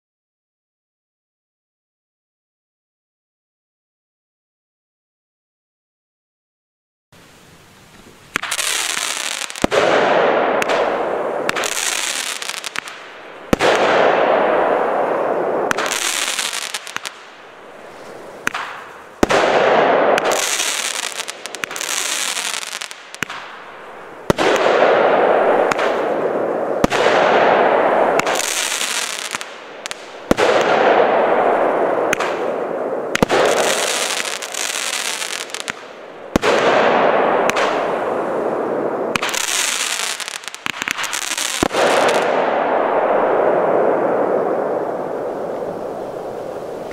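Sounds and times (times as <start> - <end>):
fireworks hissing: 7.9 - 9.7, 10.6 - 24.4, 27.9 - 30.6, 31.2 - 36.0, 39.1 - 42.3
fireworks shots with sharp reports: 8.3 - 46.9.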